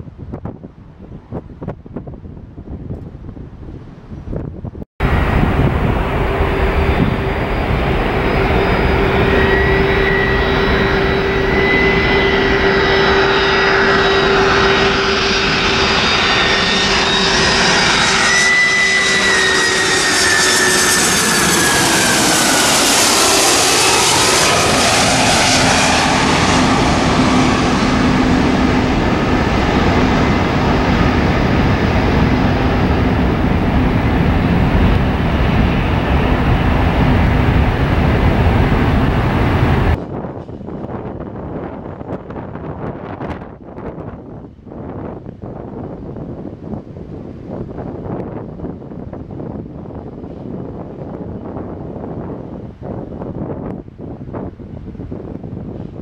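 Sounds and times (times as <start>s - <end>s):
low jet rumble: 0.0s - 56.0s
jet engines whining: 5.0s - 44.0s.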